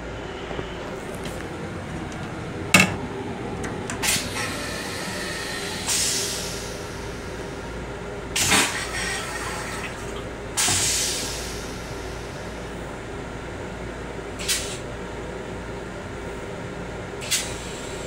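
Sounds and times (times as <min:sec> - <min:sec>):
train running noise: 0:00.0 - 0:18.0
toilet flushing whoosh: 0:01.6 - 0:07.5, 0:08.4 - 0:11.8.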